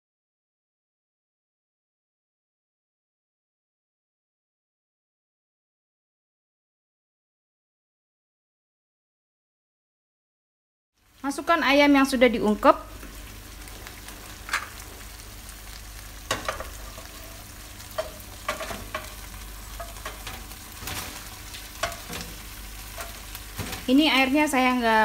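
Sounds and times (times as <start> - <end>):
sauce sizzling: 11.0 - 25.0
spatula scraping pan: 16.2 - 24.0.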